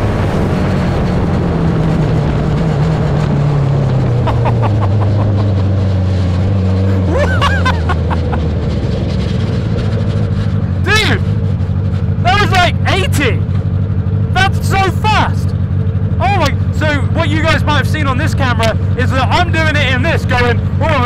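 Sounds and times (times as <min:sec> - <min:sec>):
wind noise: 0:00.0 - 0:06.4
motorcycle engine: 0:00.0 - 0:21.0.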